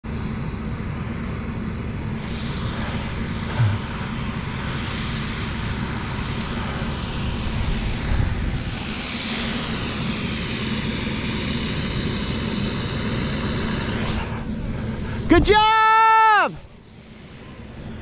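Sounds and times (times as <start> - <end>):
propeller airplane engine drone: 0.0 - 18.0
wind rumbling on microphone: 2.1 - 10.7
low thump: 3.5 - 3.9.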